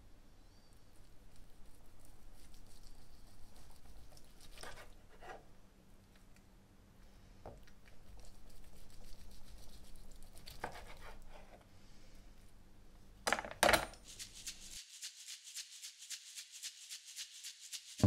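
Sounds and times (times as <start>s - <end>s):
knife slicing pork: 10.3s - 11.4s.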